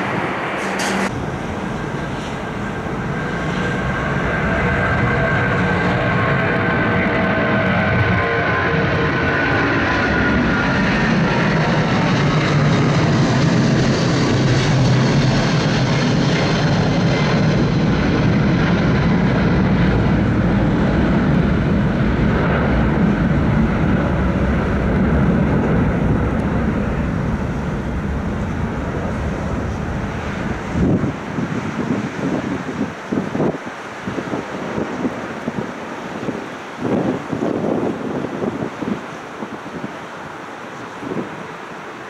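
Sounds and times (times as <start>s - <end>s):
faint jet engine whine: 0.0s - 42.0s
jet engines low rumble: 0.0s - 42.0s.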